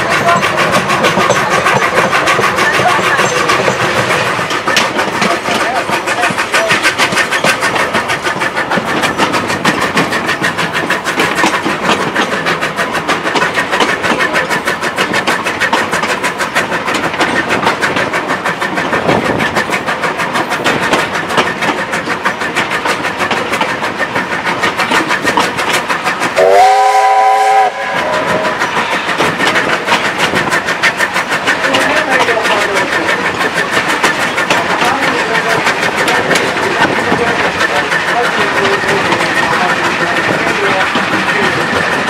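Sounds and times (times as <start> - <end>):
steam locomotive chuffing: 0.0 - 42.0
steam whistle chord: 26.4 - 28.3.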